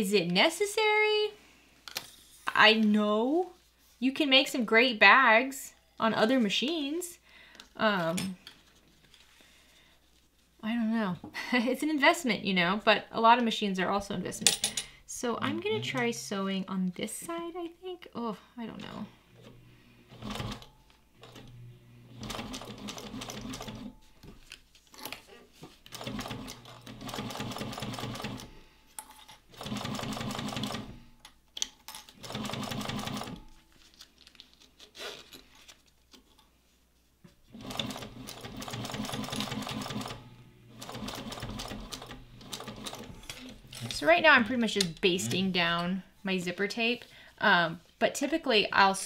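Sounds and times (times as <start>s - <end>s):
sewing machine stitching: 19.4s - 23.9s, 25.9s - 28.5s, 29.5s - 31.0s, 32.1s - 33.4s, 37.5s - 44.0s.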